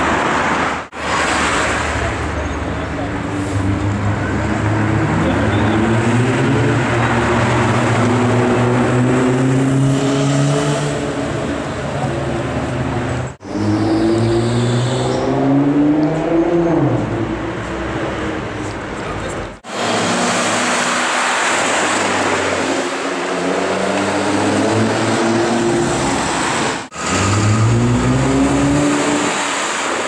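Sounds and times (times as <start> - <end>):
car engine accelerating hard: 19.6 - 30.0.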